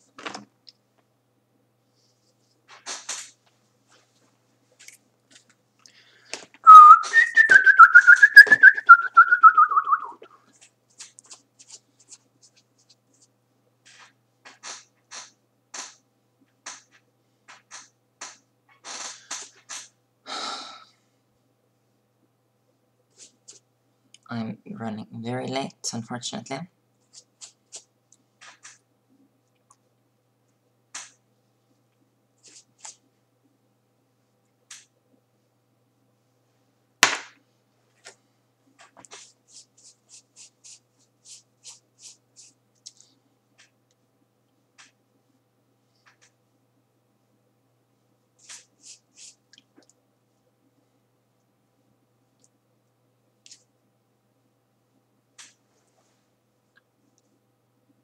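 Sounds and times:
scratchy brushing strokes: 10.6s - 13.3s, 27.0s - 27.9s, 32.4s - 33.0s, 39.0s - 43.0s, 48.4s - 49.5s
brush sweeping: 39.0s - 42.6s, 48.4s - 49.4s.

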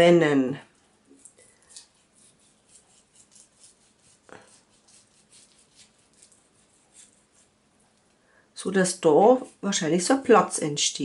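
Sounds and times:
knife cutting meat on board: 1.2s - 7.5s.

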